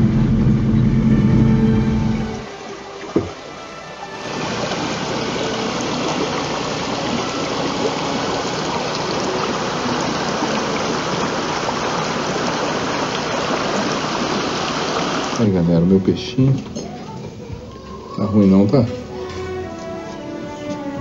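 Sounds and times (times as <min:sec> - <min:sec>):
stream flowing over stones: 0:02.2 - 0:15.6.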